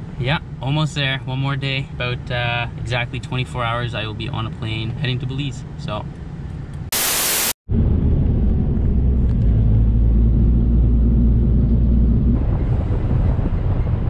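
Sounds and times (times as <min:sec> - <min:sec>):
static hiss burst: 0:06.9 - 0:07.6
van driving rumble from inside: 0:07.7 - 0:14.0.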